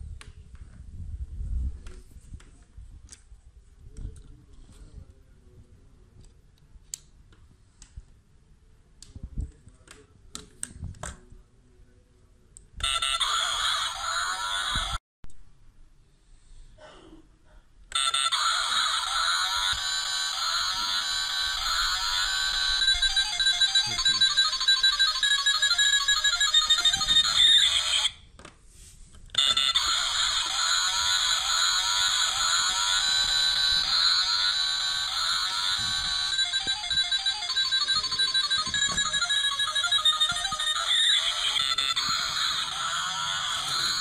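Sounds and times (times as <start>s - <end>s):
tinny electronic toy tune: 12.8s - 15.0s, 17.9s - 28.2s, 29.4s - 44.0s.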